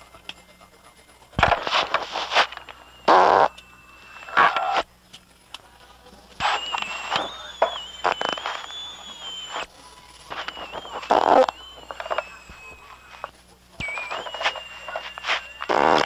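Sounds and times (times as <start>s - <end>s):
high-pitched whine: 0.0s - 5.5s, 6.4s - 16.0s
tape hiss: 0.0s - 16.0s
farts: 1.6s - 3.6s, 10.9s - 11.6s, 14.4s - 16.0s.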